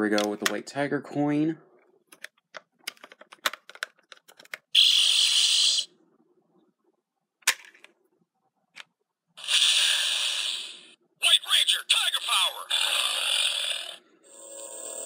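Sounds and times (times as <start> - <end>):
sharp plastic clicks: 0.0 - 0.6
electronic toy sound effect: 4.8 - 5.9, 9.4 - 15.0.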